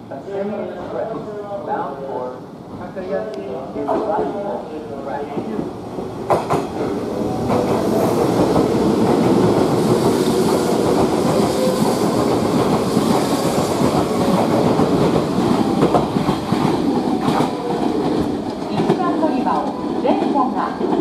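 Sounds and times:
electric train wheels clattering: 0:05.6 - 0:21.0.

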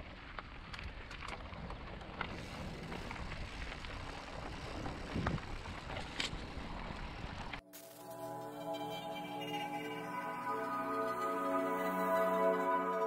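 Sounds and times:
bike rattles: 0:00.0 - 0:07.6
tyre and wind noise: 0:00.0 - 0:07.6.

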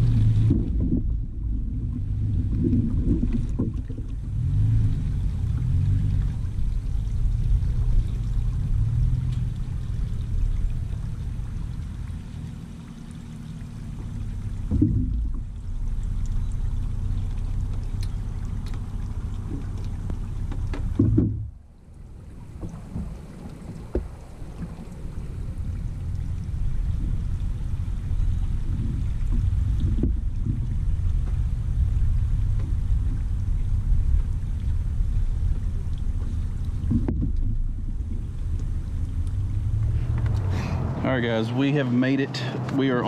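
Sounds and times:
steady low rumble: 0:00.0 - 0:43.0
knocks on kayak: 0:14.7 - 0:15.4, 0:20.5 - 0:21.5.

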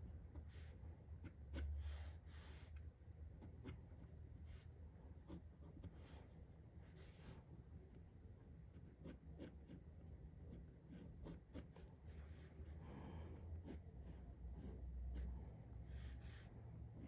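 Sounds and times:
low steady hum: 0:00.0 - 0:17.0
pencil scratching on paper: 0:00.1 - 0:06.3, 0:08.7 - 0:12.5, 0:13.6 - 0:17.0.

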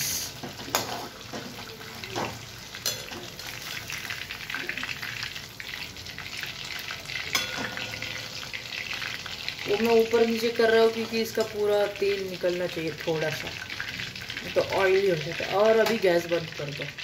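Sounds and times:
chicken sizzling in oil: 0:00.0 - 0:17.0
steel spoon clinking on pan: 0:02.8 - 0:03.3, 0:07.3 - 0:08.3.

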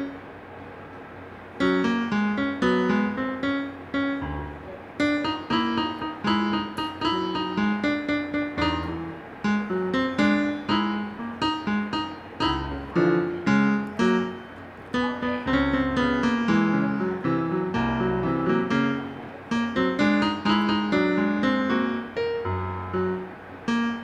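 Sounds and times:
piano-like keyboard notes: 0:00.0 - 0:00.4, 0:01.3 - 0:24.0
low bass notes: 0:04.2 - 0:04.8, 0:12.4 - 0:14.0.

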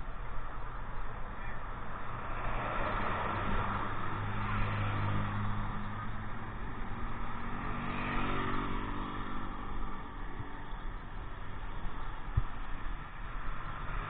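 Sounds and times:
motor scooter passing: 0:03.2 - 0:10.8.

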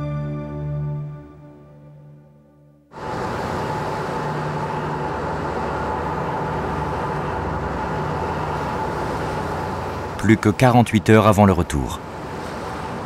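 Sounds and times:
ship engine drone: 0:00.0 - 0:13.0
wind: 0:02.9 - 0:13.0
water rushing past hull: 0:03.0 - 0:13.0.

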